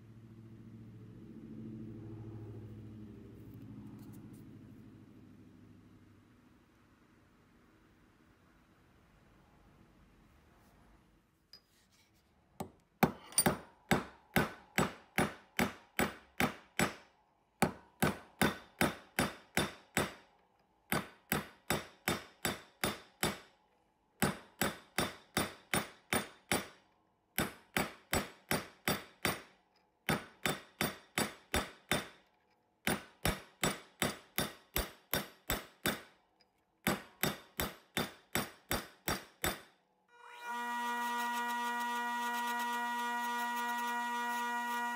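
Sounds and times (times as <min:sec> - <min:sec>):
hammer striking steel: 0:13.0 - 0:20.2, 0:20.9 - 0:23.5, 0:24.2 - 0:26.8, 0:27.4 - 0:32.2, 0:32.8 - 0:36.1, 0:36.8 - 0:39.8.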